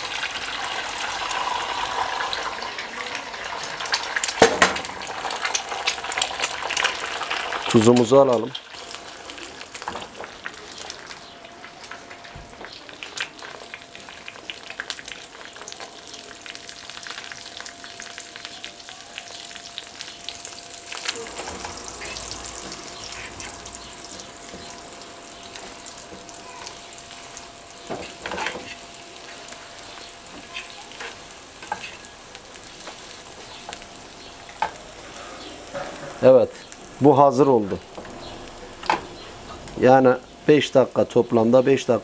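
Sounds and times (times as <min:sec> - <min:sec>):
eggs sizzling in a frying pan: 0:00.0 - 0:42.0
metal spoon scraping a pan: 0:27.9 - 0:29.4, 0:30.4 - 0:32.1.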